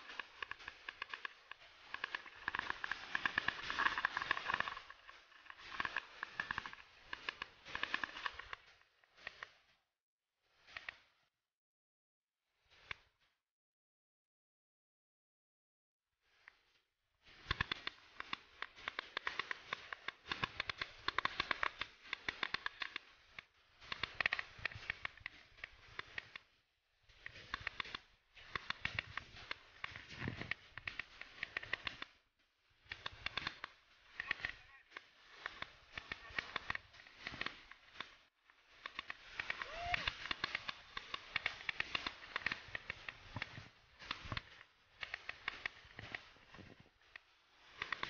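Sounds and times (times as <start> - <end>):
mountain bike rattling: 0.0 - 8.5.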